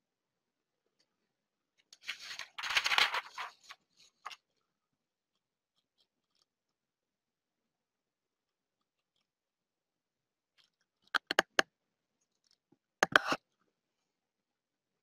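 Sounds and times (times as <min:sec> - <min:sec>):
rustling handling noise: 0:01.8 - 0:04.6.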